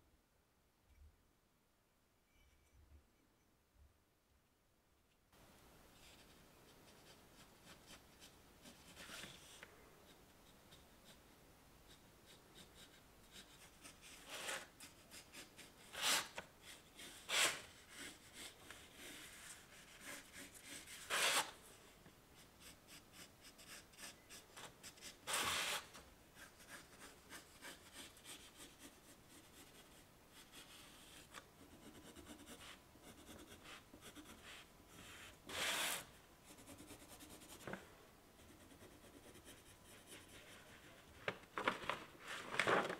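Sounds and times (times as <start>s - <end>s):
pencil scratching on paper: 6.0s - 21.6s, 22.4s - 37.7s, 38.4s - 41.0s.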